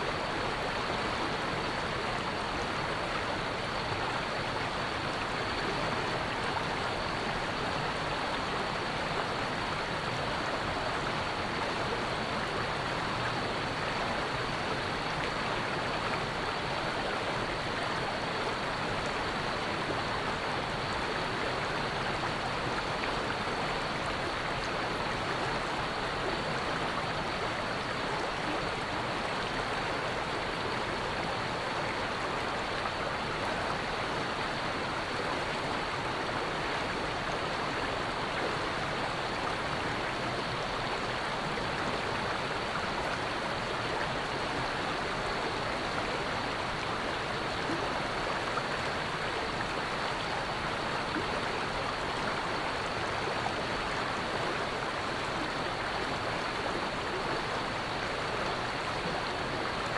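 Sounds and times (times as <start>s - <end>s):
waterfall rushing over rocks: 0.0s - 59.9s.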